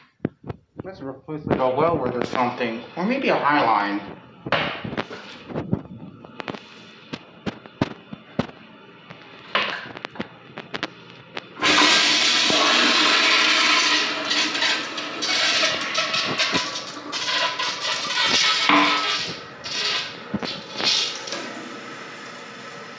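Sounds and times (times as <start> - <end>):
toilet flushing: 11.6 - 22.9.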